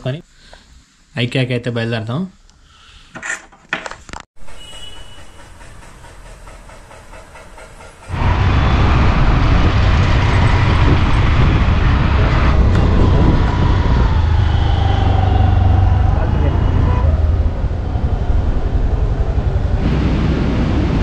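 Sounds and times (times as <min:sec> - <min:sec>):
wind buffeting microphone: 0:08.1 - 0:21.0.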